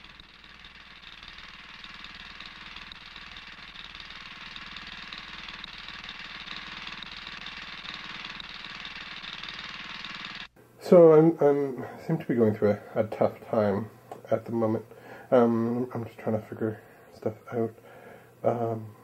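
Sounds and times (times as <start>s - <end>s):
small engine running: 0.0s - 10.6s.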